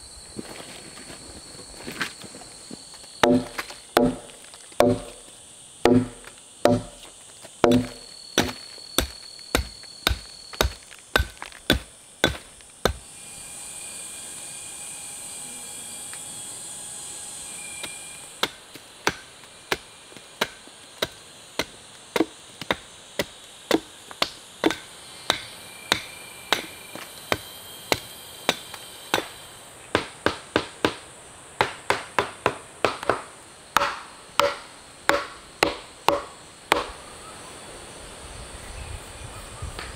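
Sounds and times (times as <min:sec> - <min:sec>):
steady hiss: 0:00.0 - 0:39.9
tool chopping wood: 0:03.2 - 0:05.2, 0:05.8 - 0:13.0, 0:17.8 - 0:29.3, 0:29.9 - 0:31.0, 0:31.6 - 0:37.0.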